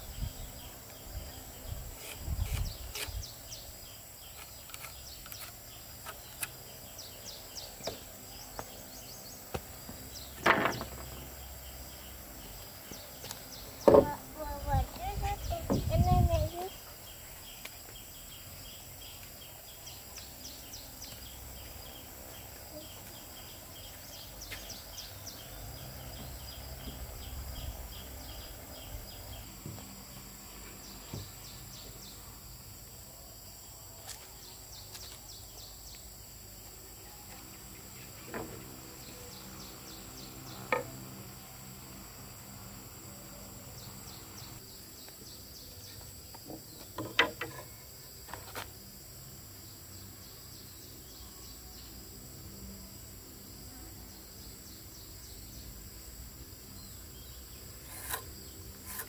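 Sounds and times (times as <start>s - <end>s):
insects chirping and trilling: 0.0s - 59.0s
sharp knocks: 10.4s - 11.2s, 13.8s - 14.2s.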